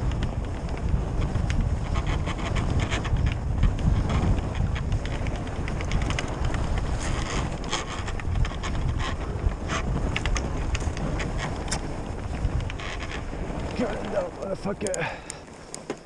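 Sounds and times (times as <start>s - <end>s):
low rumble of bike: 0.0s - 16.0s
wind buffeting microphone: 0.0s - 16.0s
tyres crunching on snow: 3.4s - 16.0s.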